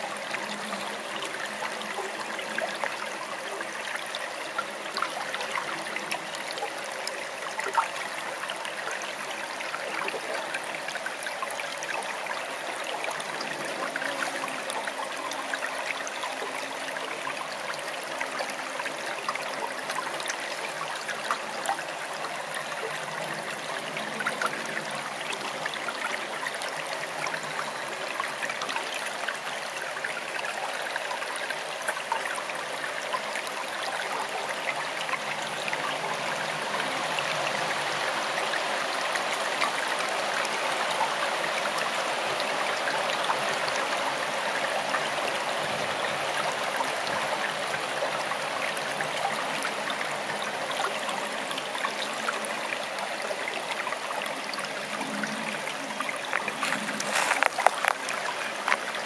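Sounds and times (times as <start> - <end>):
stream running water: 0.0 - 59.0.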